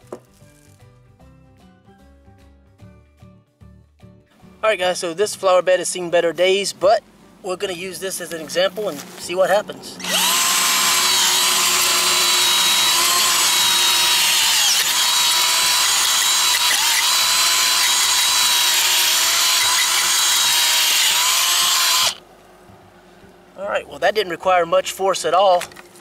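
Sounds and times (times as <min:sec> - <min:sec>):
cordless drill motor whining: 0:10.0 - 0:22.2.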